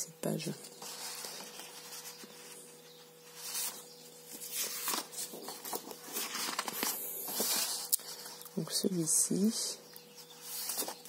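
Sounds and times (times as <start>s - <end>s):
paper sheets rustling: 0.6s - 2.7s, 3.3s - 8.4s, 10.3s - 11.0s.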